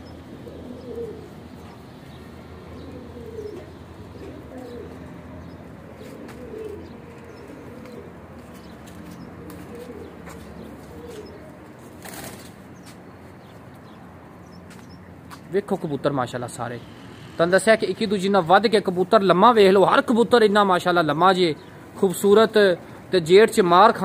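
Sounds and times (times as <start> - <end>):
pigeons cooing: 0.0 - 15.4.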